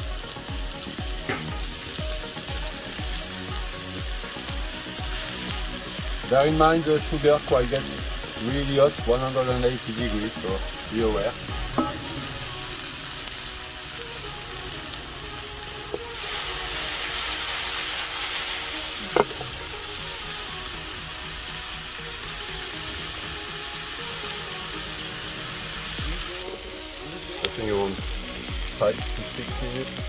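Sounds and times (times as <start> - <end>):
onions sizzling in a frying pan: 0.0 - 30.0
sharp knock: 1.3 - 1.6, 11.7 - 12.2.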